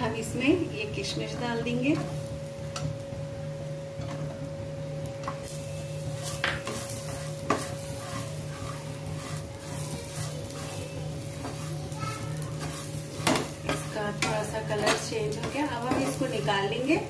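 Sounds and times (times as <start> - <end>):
light sizzle: 0.0 - 17.0
steady hum: 0.0 - 17.0
spatula scraping a pan: 5.4 - 17.0.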